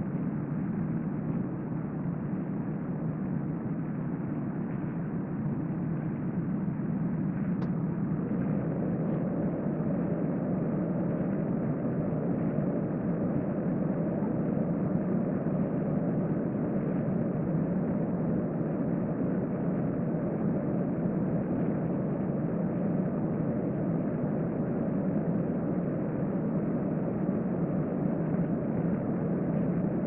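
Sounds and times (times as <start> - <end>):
low droning background noise: 0.0 - 30.0
faint click: 7.6 - 7.8.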